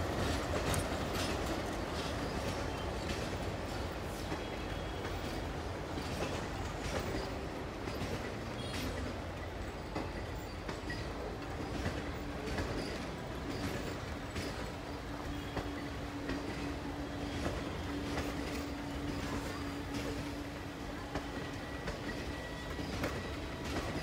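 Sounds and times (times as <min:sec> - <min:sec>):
wheels clicking over rail joints: 0:00.0 - 0:20.4
train coaches rumbling past: 0:00.0 - 0:24.0.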